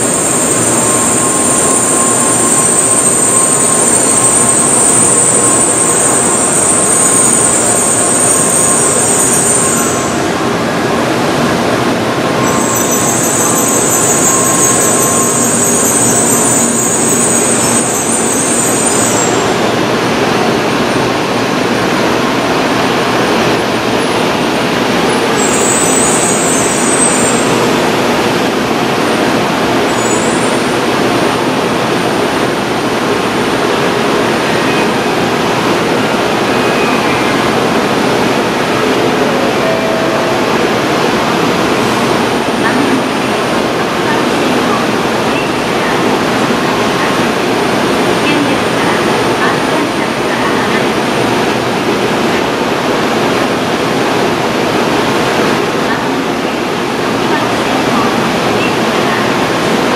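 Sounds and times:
high shrill hiss: 0.0s - 10.4s, 12.4s - 19.7s, 25.3s - 27.8s
train rumbling to a stop: 0.0s - 59.9s.

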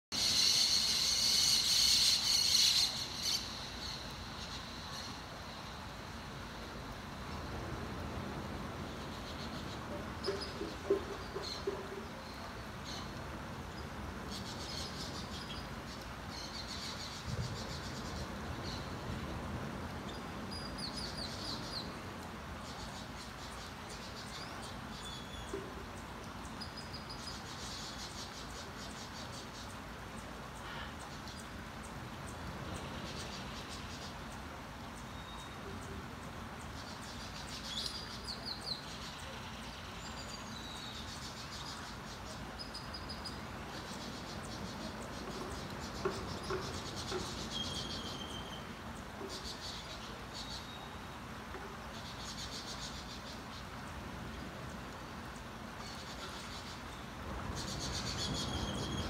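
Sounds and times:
birds chirping: 0.1s - 59.0s
steady hiss: 0.1s - 59.0s
insects chirping: 0.2s - 11.0s, 56.5s - 59.0s.

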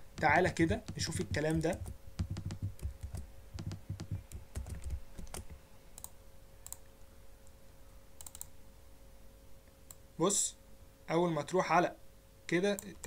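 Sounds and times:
typing on computer keyboard: 0.2s - 6.8s, 8.2s - 8.5s.

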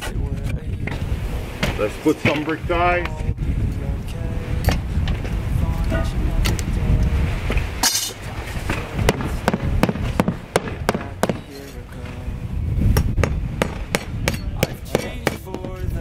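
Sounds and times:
wind rumbling on microphone: 0.0s - 16.0s
hammer striking nails: 9.1s - 11.6s, 13.2s - 15.8s.

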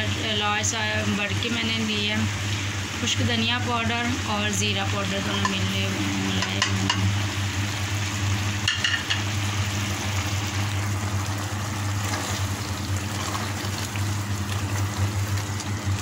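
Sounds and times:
steady low hum: 0.0s - 16.0s
curry bubbling in a pot: 6.4s - 16.0s
spatula stirring: 11.8s - 16.0s.

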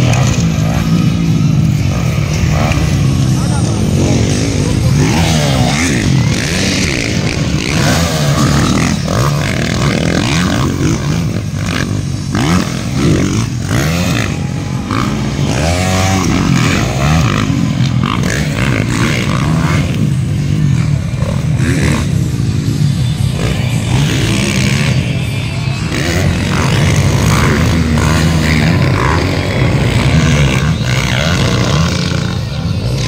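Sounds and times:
motocross bikes revving past: 0.0s - 33.0s.

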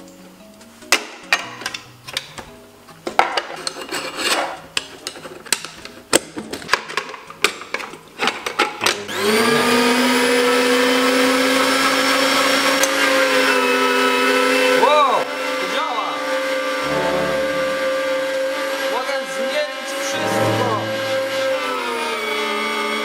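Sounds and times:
meat grinder motor humming: 9.1s - 15.6s, 21.0s - 23.0s.

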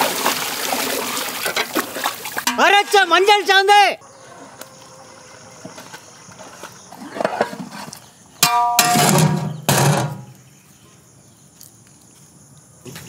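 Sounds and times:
metal lid clanging on pot: 2.4s - 2.8s, 8.4s - 10.3s.

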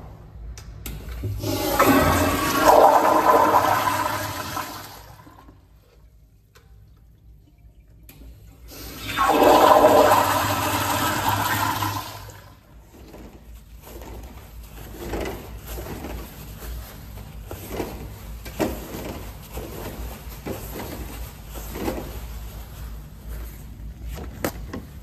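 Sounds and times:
toilet flushing: 1.2s - 5.8s, 7.0s - 12.8s
water running: 1.3s - 6.1s, 6.7s - 12.7s.

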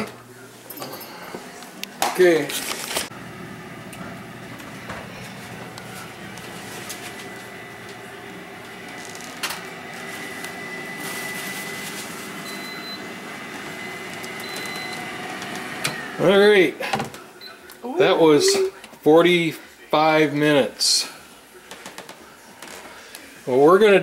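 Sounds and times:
air fryer fan humming: 1.8s - 18.7s.

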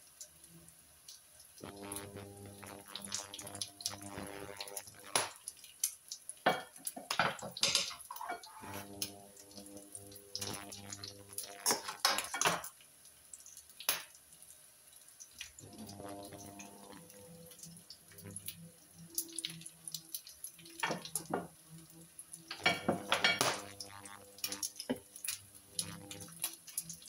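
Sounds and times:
low steady hum: 1.6s - 5.2s, 8.5s - 12.0s, 15.6s - 20.3s, 21.0s - 27.0s.

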